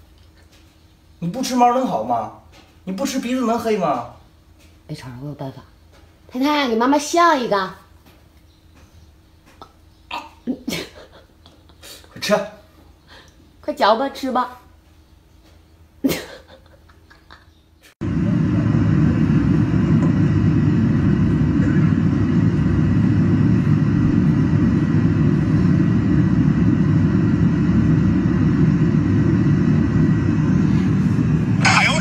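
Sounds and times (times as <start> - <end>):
airliner cabin rumble: 18.0 - 32.0.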